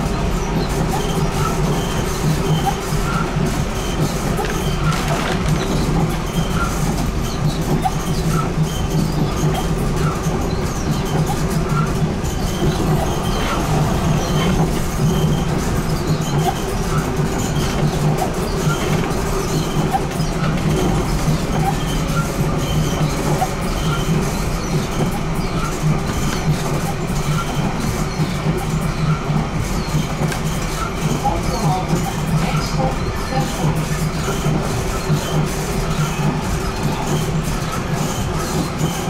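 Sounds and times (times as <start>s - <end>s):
tram running on track: 0.0s - 39.0s.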